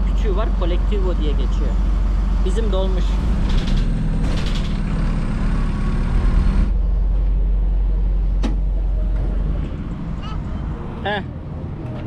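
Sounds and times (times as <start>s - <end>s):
bus engine and road rumble: 0.0s - 12.0s
sharp click: 3.4s - 4.9s.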